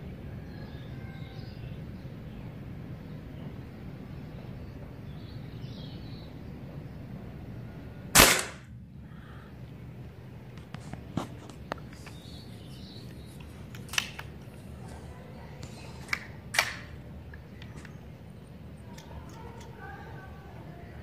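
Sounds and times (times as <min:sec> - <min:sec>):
air rifle shot: 0:08.1 - 0:08.7
light clicks of rifle handling: 0:13.0 - 0:15.0, 0:15.6 - 0:18.0.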